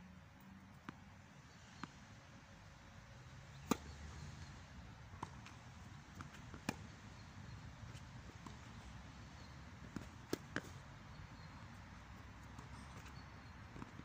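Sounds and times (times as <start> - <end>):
tennis ball struck with rackets: 3.6 - 4.0, 5.2 - 6.9.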